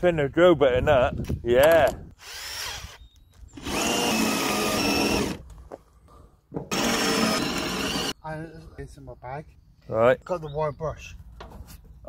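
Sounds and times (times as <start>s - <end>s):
cordless drill boring into metal: 2.2s - 5.4s, 6.7s - 8.2s.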